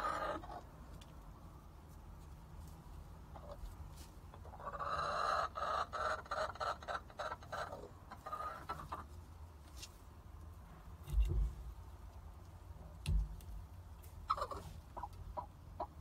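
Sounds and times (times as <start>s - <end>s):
hen squawking and clucking: 0.0s - 0.8s, 3.3s - 9.2s, 14.2s - 16.0s.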